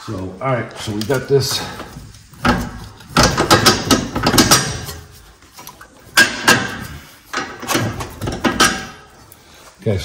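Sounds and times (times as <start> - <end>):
metal clicks and knocks from tools: 5.6 - 9.0.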